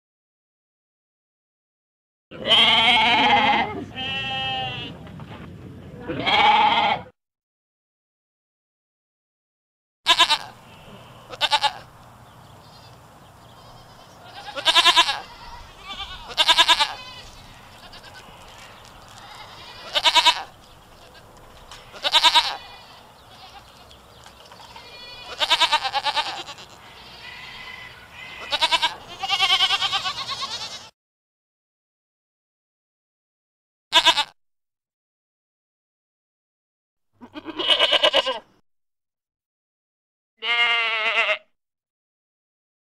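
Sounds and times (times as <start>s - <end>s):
goats bleating: 2.3s - 5.0s, 6.1s - 7.1s, 10.1s - 11.9s, 12.6s - 30.9s, 33.9s - 34.4s, 37.2s - 38.5s, 40.4s - 41.5s.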